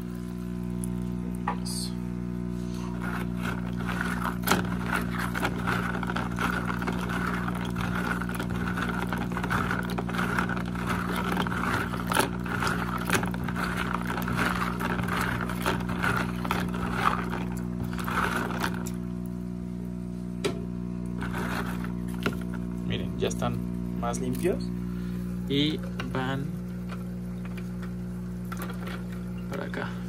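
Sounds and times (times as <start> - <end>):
aquarium filter motor hum: 0.0 - 30.0
filter rings swished in water: 2.8 - 19.0, 21.1 - 22.8, 25.2 - 29.8.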